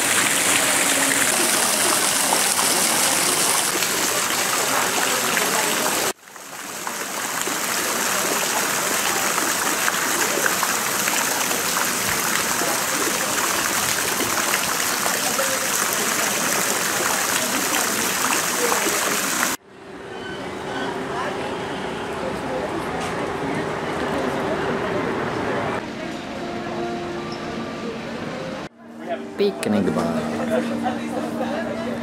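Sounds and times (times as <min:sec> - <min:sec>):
fountain water splashing: 0:00.0 - 0:19.6.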